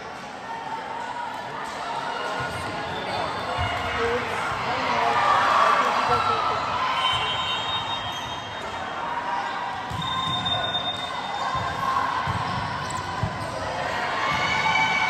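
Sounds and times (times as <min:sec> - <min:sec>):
murmur of spectators' voices: 0:00.0 - 0:15.0
volleyball bouncing on gym floor: 0:03.4 - 0:04.2, 0:09.8 - 0:15.0.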